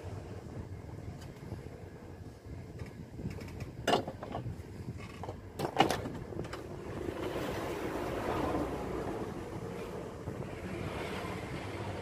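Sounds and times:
low steady rumble: 0:00.0 - 0:12.0
handling of circuit boards and wires: 0:02.8 - 0:06.7.

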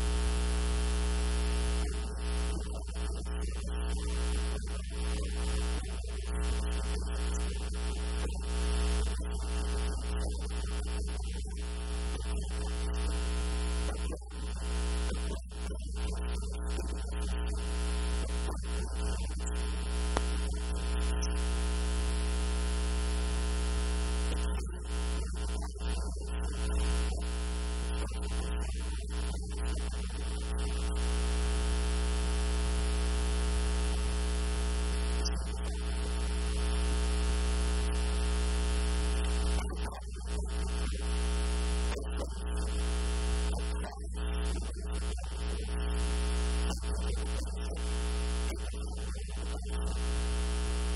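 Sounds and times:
electrical mains hum: 0:00.0 - 0:31.6
static hiss: 0:00.0 - 0:50.9.

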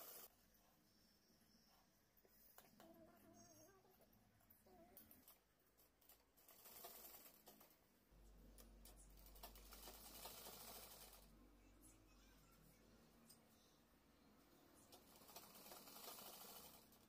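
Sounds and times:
sewing machine motor humming: 0:00.0 - 0:00.3, 0:09.2 - 0:11.3, 0:14.9 - 0:17.0.

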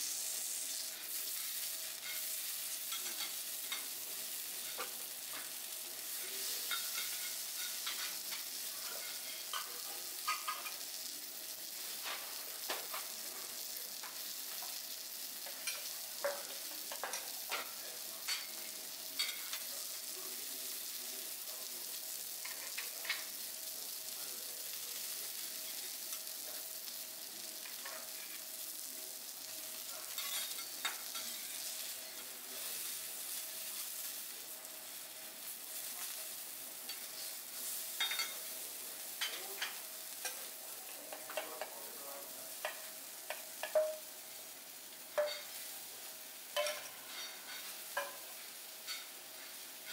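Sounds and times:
food sizzling on griddle: 0:00.0 - 0:49.9
clicks and taps on hot plate: 0:15.4 - 0:17.7, 0:41.1 - 0:41.8, 0:42.6 - 0:44.0.

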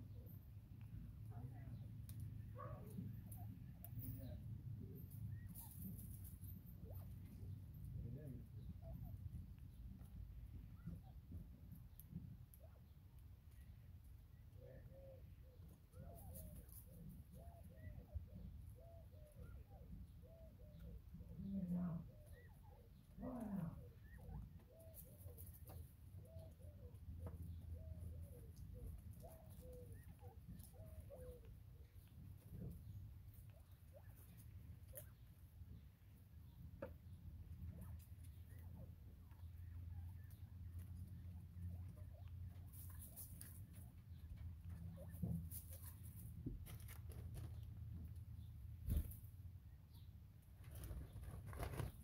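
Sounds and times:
quail chirping calls: 0:00.1 - 0:50.1
bird pecking and scratching in hay: 0:40.7 - 0:47.9, 0:50.6 - 0:52.0.

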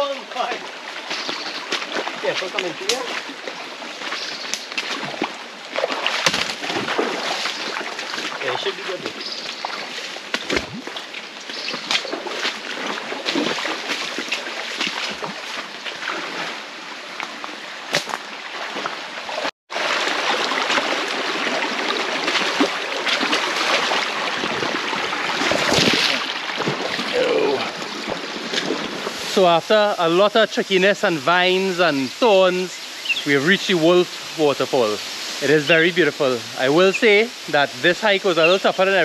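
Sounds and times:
footsteps splashing through water: 0:00.0 - 0:29.4
stream running over rocks: 0:00.0 - 0:39.0.

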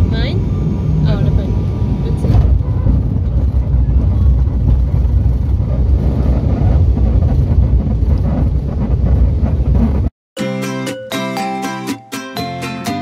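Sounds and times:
airplane engines rumbling in cabin: 0:00.0 - 0:10.1.

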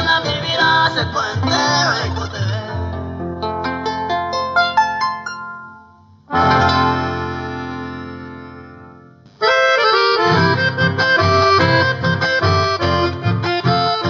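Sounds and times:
accordion melody: 0:00.0 - 0:02.4, 0:06.2 - 0:14.0
folk band playing: 0:06.3 - 0:14.0.

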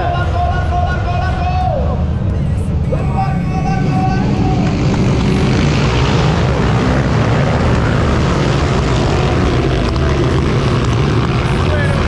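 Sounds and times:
motocross bikes racing past: 0:03.0 - 0:12.0.

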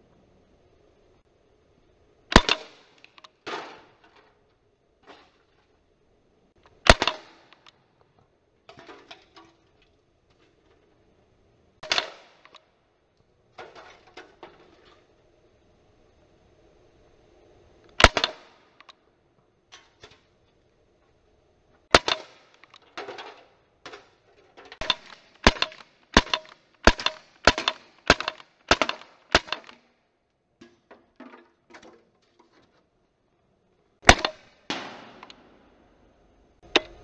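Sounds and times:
air pistol shots: 0:02.3 - 0:03.9, 0:06.8 - 0:07.7, 0:11.8 - 0:12.6, 0:18.0 - 0:18.8, 0:21.9 - 0:22.8, 0:24.8 - 0:29.9, 0:34.0 - 0:35.7.

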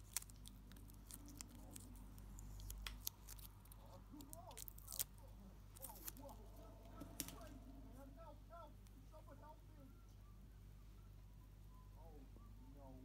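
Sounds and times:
plastic film crinkling: 0:00.0 - 0:06.4.

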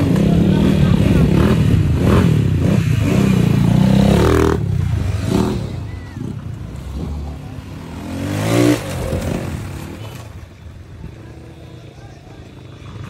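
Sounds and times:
motorcycle engines pulling away: 0:00.0 - 0:13.0
motorcycle revving: 0:00.0 - 0:13.0.

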